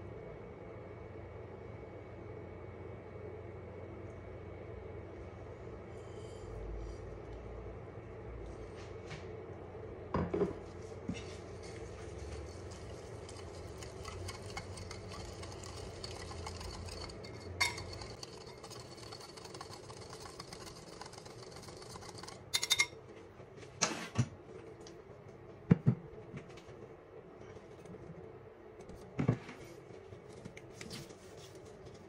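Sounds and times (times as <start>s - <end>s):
whisk scraping in a ceramic bowl: 11.2s - 22.9s.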